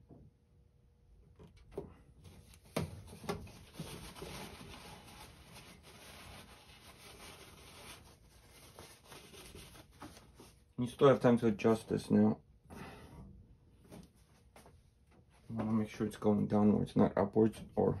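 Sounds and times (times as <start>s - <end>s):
plastic scraping on plastic: 1.6s - 10.6s.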